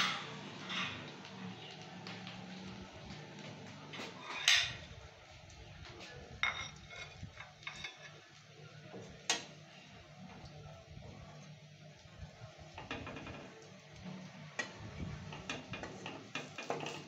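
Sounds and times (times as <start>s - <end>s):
food frying in oil: 0.0s - 5.5s, 6.1s - 17.0s
spatula knocking and scraping wok: 14.1s - 17.0s.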